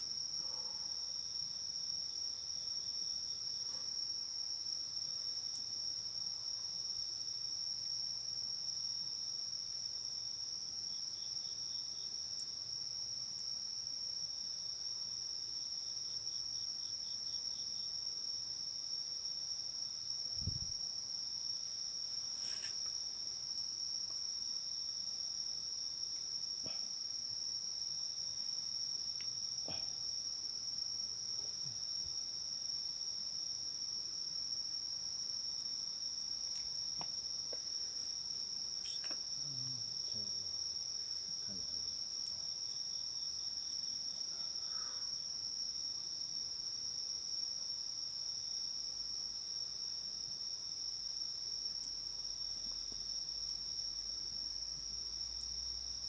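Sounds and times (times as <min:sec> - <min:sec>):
crickets trilling: 0:00.0 - 0:56.0
insect pulsed trills: 0:35.9 - 0:40.8.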